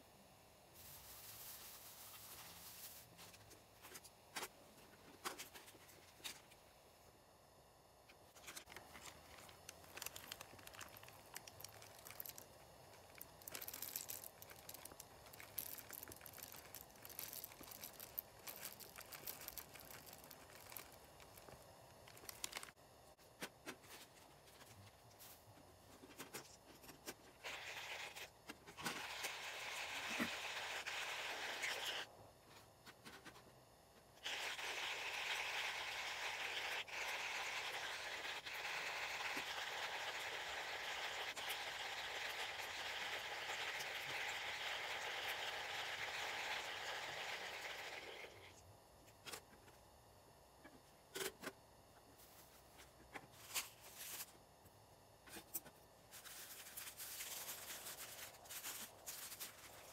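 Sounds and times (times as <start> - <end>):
coffee grinder crunching beans: 8.4 - 22.8, 27.4 - 32.1, 34.2 - 48.5.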